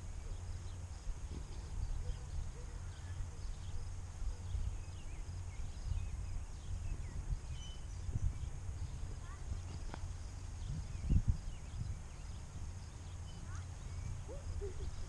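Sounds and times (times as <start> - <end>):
faint bird chirps: 0.0 - 15.0
wind buffeting microphone: 1.0 - 15.0.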